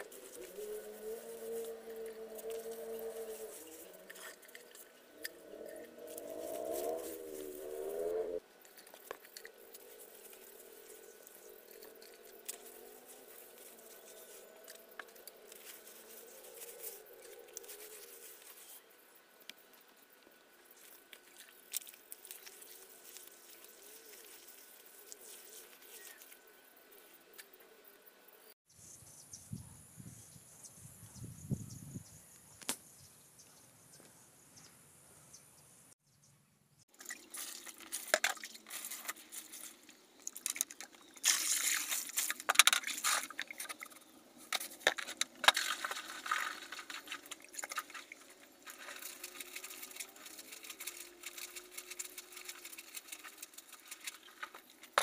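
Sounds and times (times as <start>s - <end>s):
wet mud squishing: 36.9s - 55.0s.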